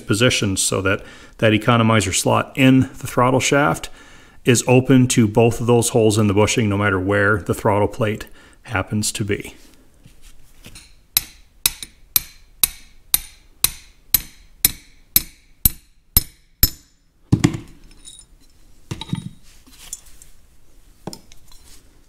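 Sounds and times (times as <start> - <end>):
hammer tapping metal rod: 10.7 - 17.0.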